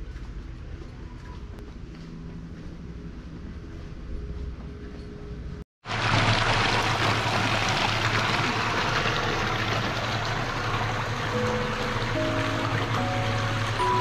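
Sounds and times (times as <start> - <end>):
water gushing into bath: 5.8 - 14.0.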